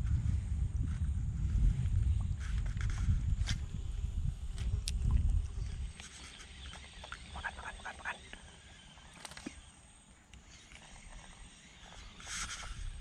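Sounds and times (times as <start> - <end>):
rustling noise: 0.0 - 3.8, 11.9 - 13.0
wind rumble on microphone: 0.0 - 8.2, 10.9 - 13.0.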